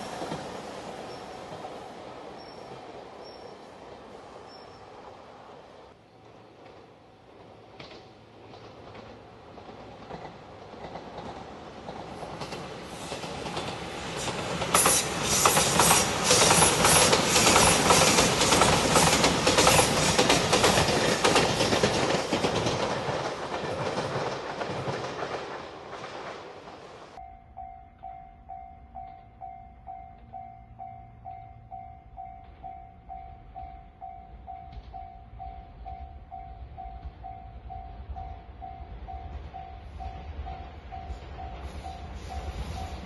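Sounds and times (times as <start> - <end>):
train wheels clattering over rail joints: 6.5 - 27.2
level-crossing bell ringing: 27.2 - 43.0.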